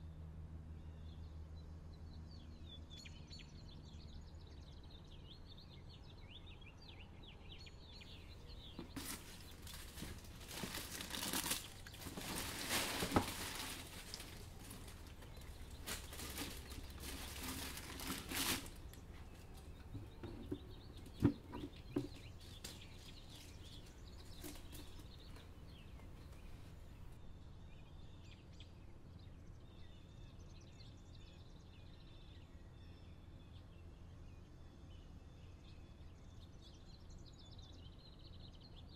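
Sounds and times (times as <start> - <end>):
faint birds chirping: 0.0 - 38.9
paper packaging rustling: 8.2 - 27.1.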